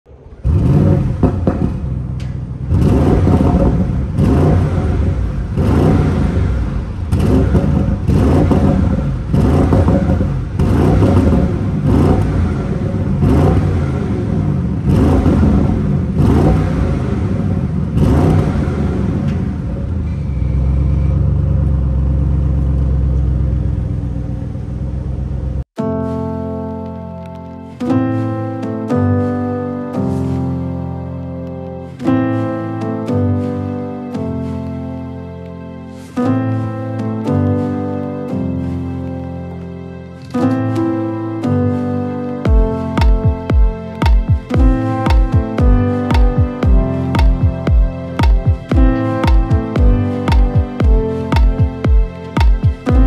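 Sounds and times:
car engine revving: 0:00.1 - 0:25.7
car engine idling: 0:00.2 - 0:25.7.

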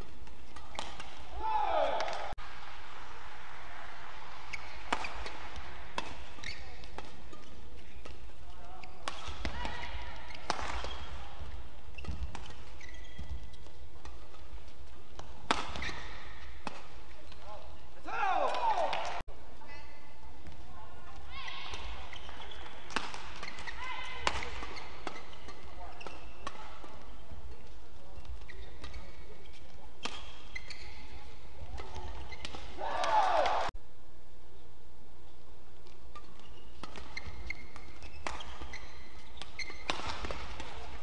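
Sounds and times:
rackets hitting shuttlecock: 0:00.0 - 0:03.2, 0:04.1 - 0:17.6, 0:21.6 - 0:33.7, 0:35.8 - 0:41.0
low hall hum: 0:00.0 - 0:41.0
shoe squeak on court: 0:04.5 - 0:05.5, 0:06.3 - 0:08.0, 0:08.8 - 0:11.3, 0:11.9 - 0:13.8, 0:15.7 - 0:16.4, 0:21.4 - 0:23.8, 0:24.4 - 0:26.8, 0:28.2 - 0:31.2, 0:36.2 - 0:40.8.

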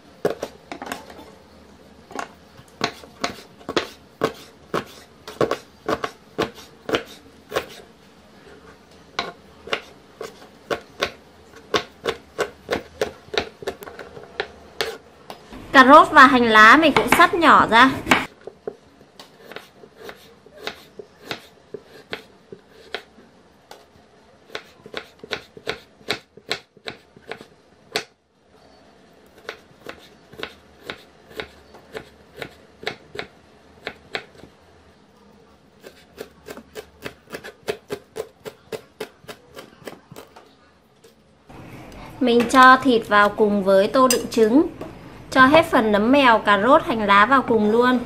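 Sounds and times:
knife chopping on wooden board: 0:02.8 - 0:07.8, 0:09.2 - 0:15.0, 0:19.4 - 0:23.1, 0:24.5 - 0:28.1, 0:29.4 - 0:34.5, 0:35.8 - 0:40.4.

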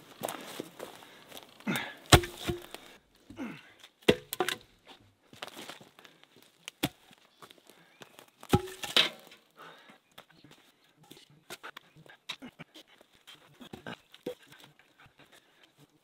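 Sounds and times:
footsteps through brush: 0:00.0 - 0:03.0, 0:04.7 - 0:12.0
sticks knocking and cracking: 0:01.6 - 0:04.8, 0:06.6 - 0:07.2, 0:08.2 - 0:09.5.

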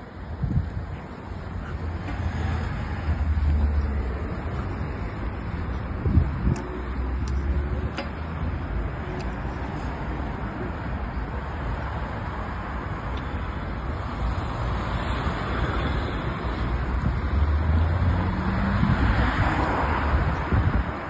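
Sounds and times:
cars driving past: 0:00.4 - 0:21.0.

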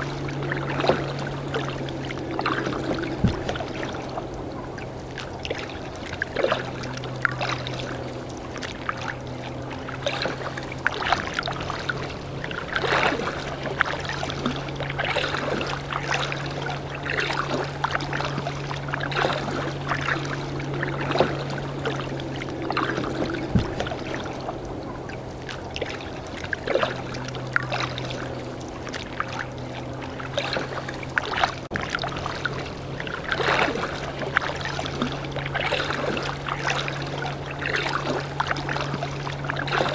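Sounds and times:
kayak paddle splashing in water: 0:00.0 - 0:39.9
steady low hum: 0:00.0 - 0:39.9.

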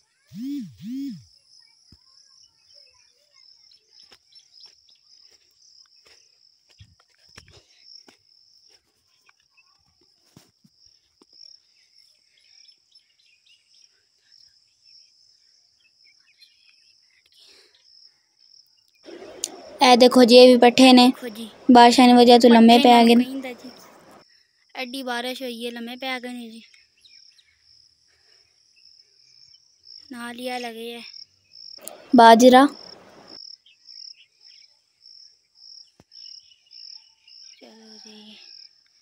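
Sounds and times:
insects chirring: 0:13.8 - 0:28.0, 0:28.6 - 0:39.0.

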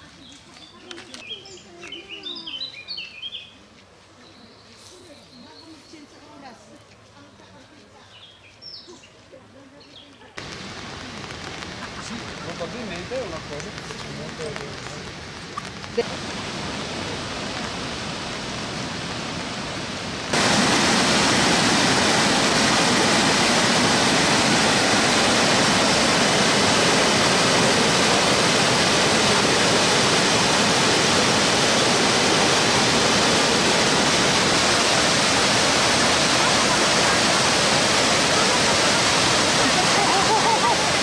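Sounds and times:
waterfall rushing: 0:10.4 - 0:41.0.

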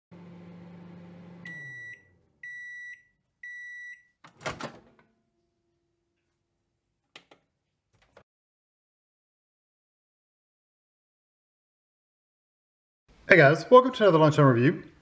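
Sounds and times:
microwave oven humming: 0:00.1 - 0:03.6
microwave beeps: 0:01.0 - 0:04.2
microwave door latch clunk: 0:04.3 - 0:05.0.

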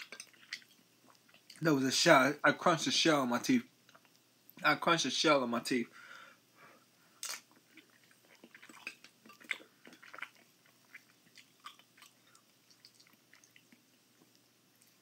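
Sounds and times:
person chewing food: 0:00.0 - 0:01.6, 0:03.8 - 0:04.3, 0:07.1 - 0:15.0.

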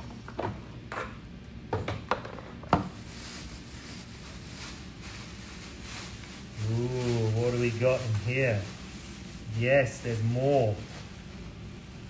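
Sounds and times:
plastic bag crinkling: 0:02.9 - 0:12.0.

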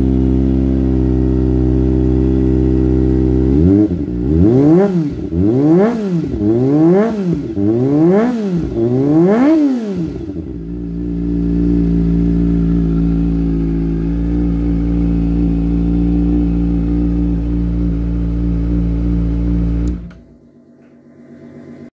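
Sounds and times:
motorcycle engine revving and idling: 0:00.0 - 0:20.4.

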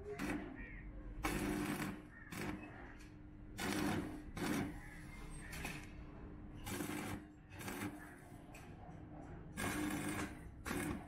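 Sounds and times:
arc welding crackling: 0:00.0 - 0:00.6, 0:01.2 - 0:02.8, 0:03.5 - 0:05.9, 0:06.6 - 0:08.2, 0:09.6 - 0:11.0.

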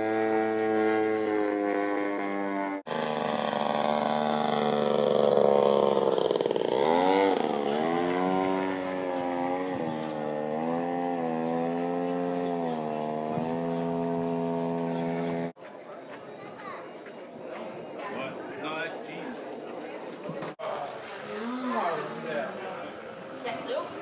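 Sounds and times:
model airplane engine droning: 0:00.0 - 0:15.6.

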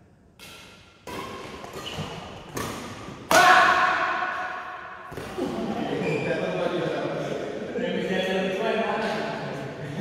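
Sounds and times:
racket striking shuttlecock: 0:00.4 - 0:05.4.

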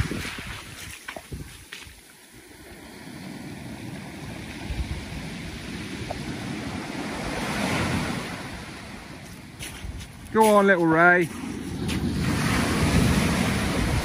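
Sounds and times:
small waves washing over shingle: 0:00.0 - 0:14.0.

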